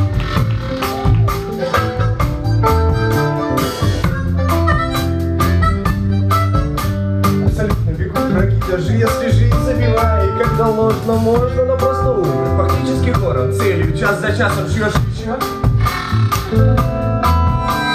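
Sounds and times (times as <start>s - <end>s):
harmonica held notes: 0.0s - 7.4s, 15.6s - 17.9s
drum kit: 0.0s - 17.9s
electric guitar: 0.0s - 17.9s.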